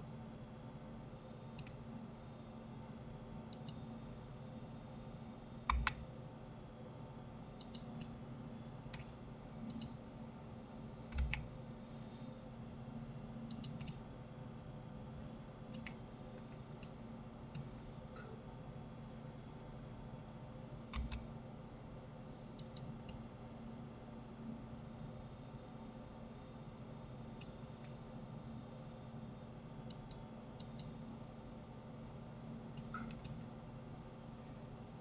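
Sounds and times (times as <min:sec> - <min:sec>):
faint steady hum: 0:00.0 - 0:35.0
mouse and keyboard clicks: 0:05.7 - 0:06.0, 0:07.6 - 0:08.1, 0:11.1 - 0:11.5, 0:32.8 - 0:33.4.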